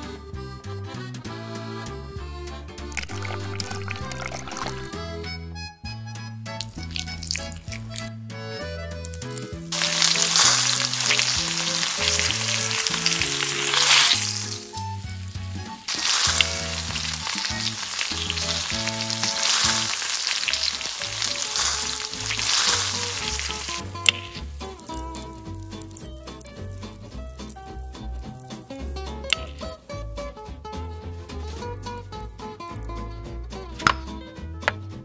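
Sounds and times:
batter sizzling in wok: 0:06.6 - 0:08.1, 0:09.1 - 0:29.9.

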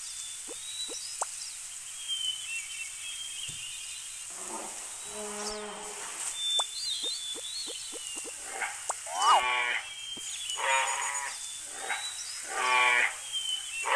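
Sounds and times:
birds chirping: 0:00.0 - 0:13.9
insects droning: 0:00.0 - 0:13.9
low drawn-out animal call: 0:08.3 - 0:09.9, 0:10.6 - 0:13.9.

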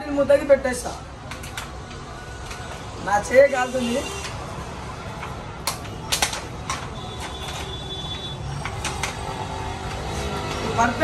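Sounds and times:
handling clicks and taps: 0:01.2 - 0:02.8, 0:05.1 - 0:07.8.

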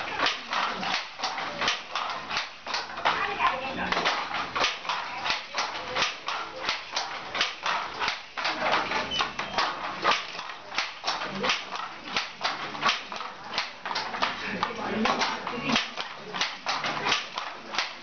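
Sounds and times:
wooden handloom clacking: 0:00.0 - 0:18.0.

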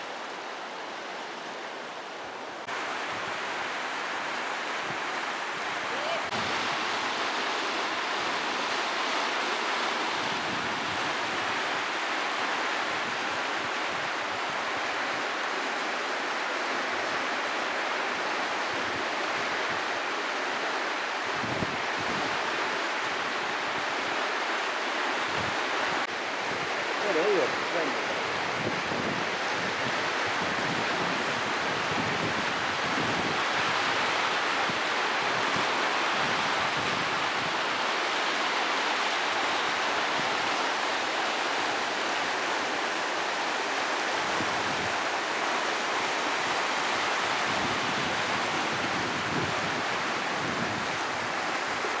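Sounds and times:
river rapids rushing: 0:00.0 - 0:52.0.

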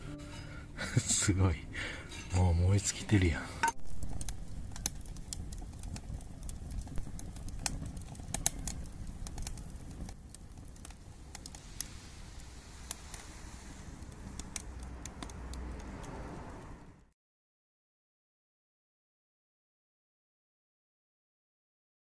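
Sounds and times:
low steady outdoor rumble: 0:00.0 - 0:17.1
embers crackling and ticking: 0:00.2 - 0:17.1.

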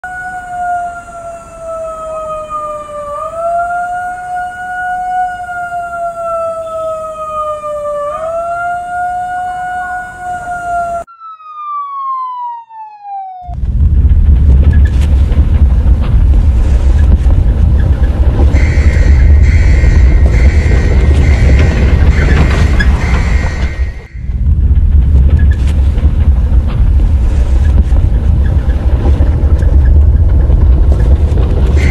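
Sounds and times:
wailing alarm siren: 0:00.0 - 0:13.6, 0:18.5 - 0:24.3, 0:29.7 - 0:31.9
loud deep rumble: 0:13.5 - 0:31.9.

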